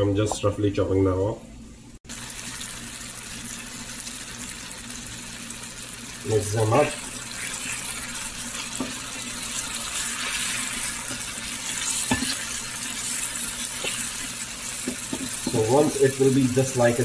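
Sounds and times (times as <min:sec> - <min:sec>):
vegetables sizzling in oil: 0:02.1 - 0:17.0.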